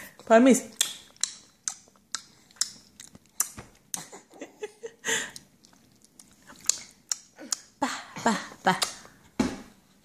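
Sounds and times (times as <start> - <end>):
toddler lip smacks and mouth clicks: 0.7 - 4.1, 5.3 - 7.8.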